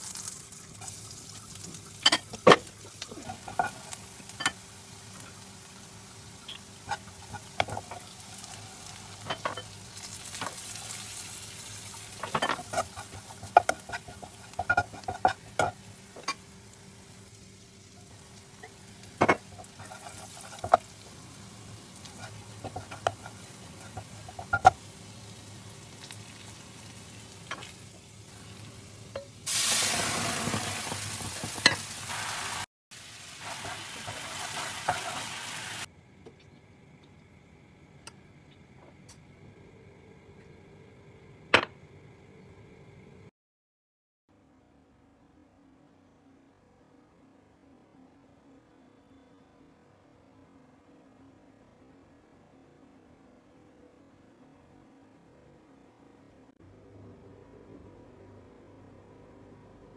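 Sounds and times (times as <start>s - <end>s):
garlic sizzling in oil: 0.0s - 35.9s
utensil scraping a pan: 12.2s - 16.3s, 19.2s - 20.9s, 22.1s - 24.8s, 33.5s - 35.4s.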